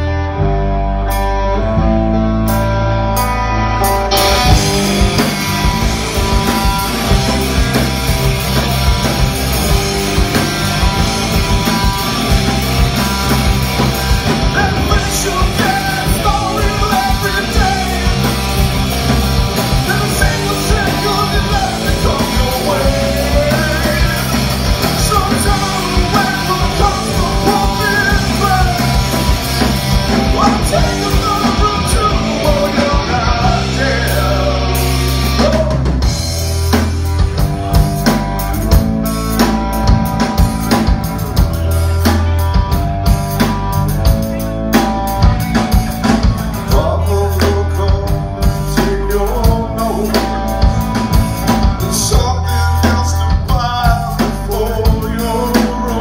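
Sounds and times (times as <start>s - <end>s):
electric guitar: 0.0s - 56.0s
rock band playing: 0.0s - 56.0s
drum kit: 1.1s - 56.0s
person singing: 14.2s - 18.9s, 19.5s - 36.1s, 45.2s - 56.0s.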